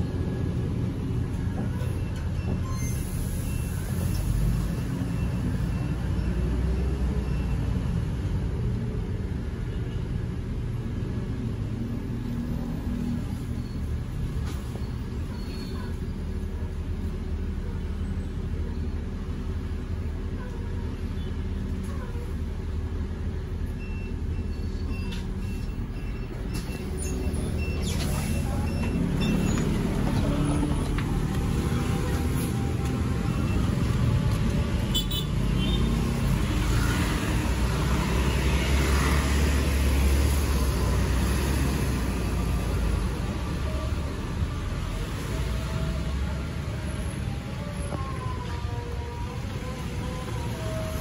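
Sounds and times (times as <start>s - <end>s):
bus engine rumbling: 0.0s - 51.0s
bus running inside cabin: 0.0s - 51.0s
street traffic: 0.0s - 51.0s
short beeps: 23.7s - 29.7s.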